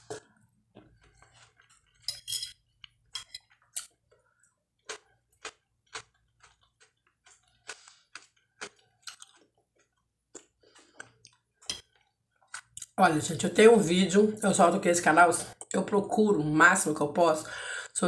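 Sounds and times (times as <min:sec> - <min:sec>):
chewing: 0:00.0 - 0:02.1, 0:02.7 - 0:13.0.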